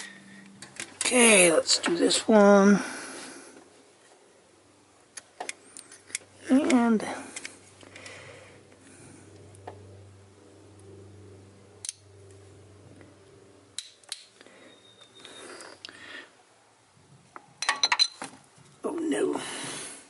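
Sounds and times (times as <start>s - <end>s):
faint steady hum: 0.0s - 20.0s.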